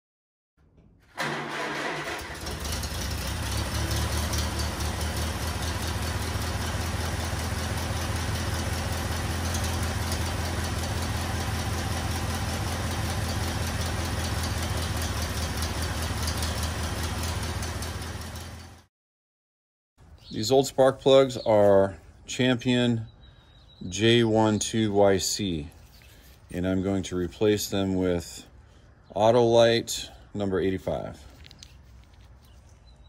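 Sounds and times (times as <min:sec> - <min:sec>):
engine running steadily: 0:01.2 - 0:18.8.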